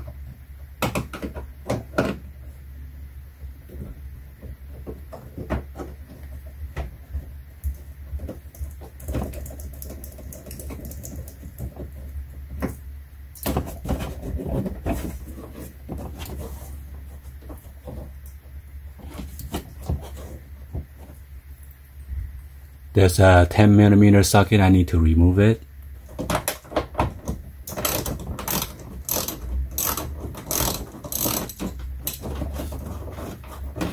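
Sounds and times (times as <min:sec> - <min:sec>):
steady low hum: 0:00.0 - 0:33.9
hands rattling plastic liner: 0:26.0 - 0:33.9.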